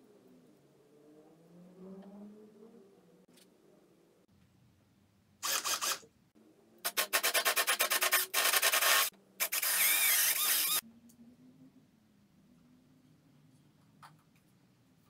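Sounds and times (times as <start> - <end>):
cordless drill boring into wood: 5.4 - 6.0, 7.0 - 10.8.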